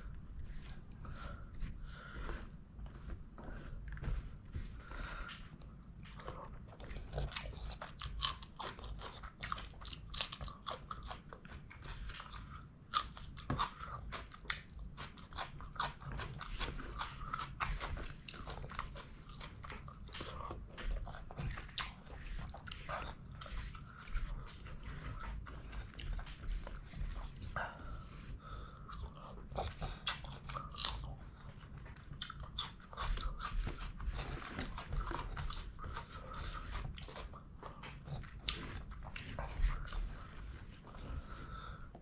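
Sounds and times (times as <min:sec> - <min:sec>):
wet chewing and lip-smacking: 0:05.7 - 0:27.6, 0:28.9 - 0:41.0.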